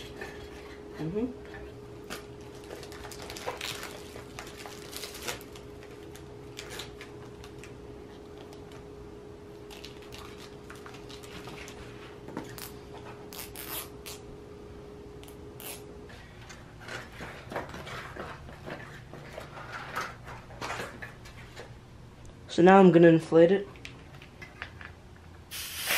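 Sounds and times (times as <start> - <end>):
faint steady hum: 0.0 - 25.9
plastic crinkling: 2.1 - 8.8, 9.6 - 13.9.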